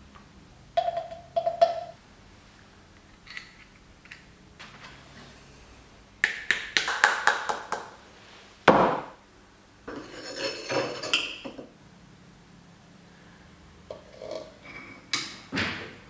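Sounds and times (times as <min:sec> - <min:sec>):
metal sliding and scraping: 0:09.9 - 0:11.1, 0:13.9 - 0:15.1.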